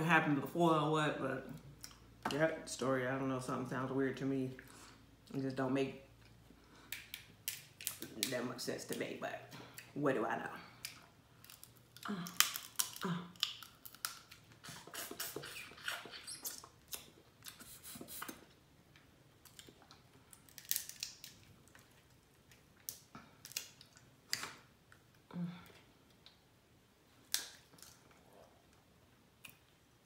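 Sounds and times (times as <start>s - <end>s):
crab shells snapping: 6.9s - 8.3s, 10.8s - 14.4s, 19.5s - 21.8s, 22.8s - 24.6s, 27.3s - 28.0s
wet chewing: 10.8s - 18.5s.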